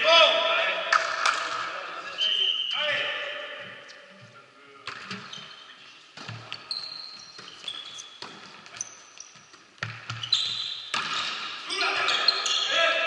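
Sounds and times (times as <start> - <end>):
sneaker squeaks on court: 5.0 - 12.7
volleyball knocks echoing: 10.9 - 11.7.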